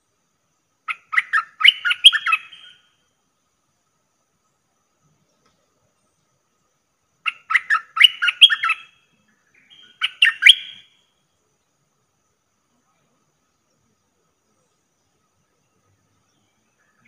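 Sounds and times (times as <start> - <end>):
bulbul chirping song: 0.5 - 3.2, 7.1 - 11.8, 13.6 - 17.0.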